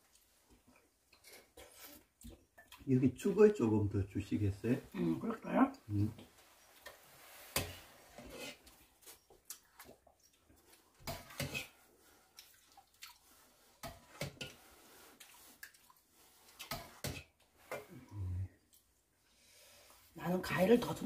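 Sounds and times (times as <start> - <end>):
wet scooping of porridge: 5.8 - 19.0.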